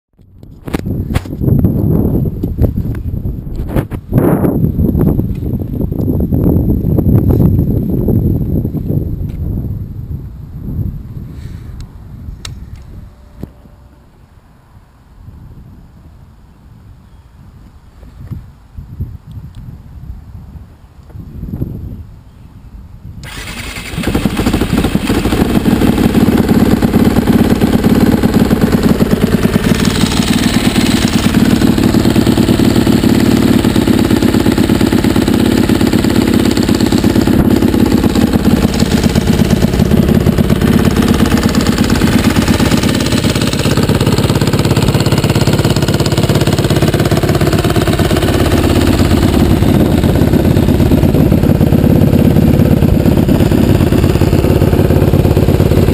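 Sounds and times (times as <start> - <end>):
motorcycle engine idling: 23.2 - 55.9.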